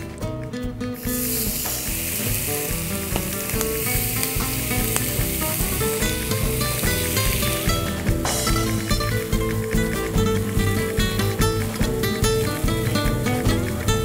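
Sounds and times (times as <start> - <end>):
plucked background music: 0.0 - 14.0
squid sizzling in hot oil: 1.0 - 8.8.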